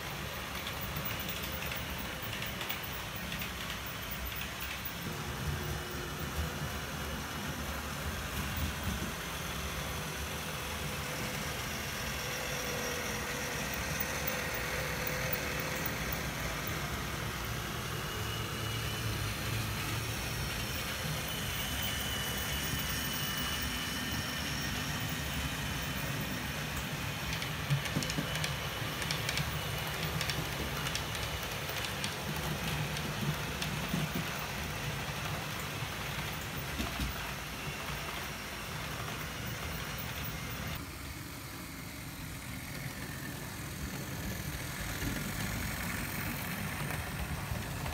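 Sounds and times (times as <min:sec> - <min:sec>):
wheels clicking over rail joints: 0:00.0 - 0:06.0, 0:25.0 - 0:40.8, 0:42.4 - 0:47.9
model train motor hum: 0:00.0 - 0:47.9.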